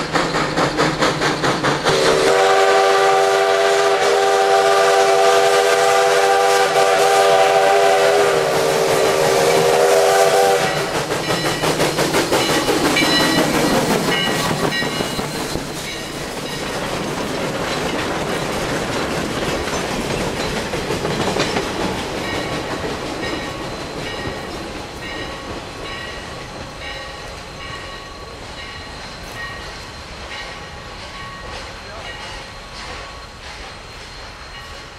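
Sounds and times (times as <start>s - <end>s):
steam train passing: 0.0s - 34.9s
wheels clattering over rail joints: 10.7s - 27.7s.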